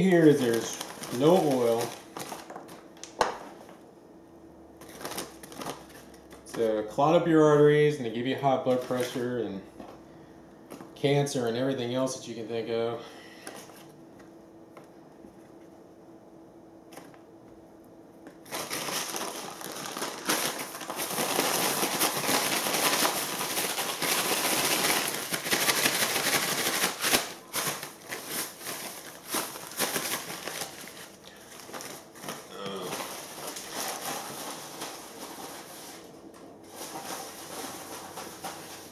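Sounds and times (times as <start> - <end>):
paper bag crinkling: 0.0 - 3.8, 4.8 - 7.1, 8.1 - 9.9, 18.4 - 38.9.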